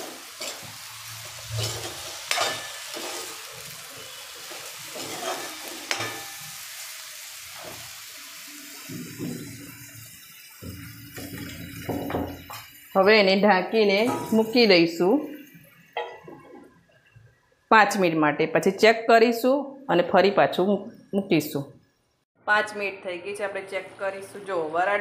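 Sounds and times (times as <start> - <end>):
vegetables sizzling in oil: 0.0 - 16.0
metal spatula scraping a pan: 1.4 - 6.6.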